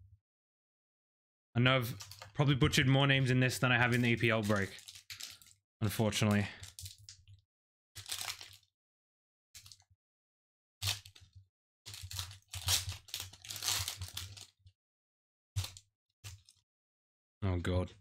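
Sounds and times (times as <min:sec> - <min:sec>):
foil wrapper crinkling and tearing: 0:02.0 - 0:02.4, 0:03.2 - 0:05.6, 0:06.2 - 0:07.3, 0:08.0 - 0:08.7, 0:09.6 - 0:09.8, 0:10.8 - 0:11.3, 0:11.9 - 0:14.6, 0:15.6 - 0:16.6.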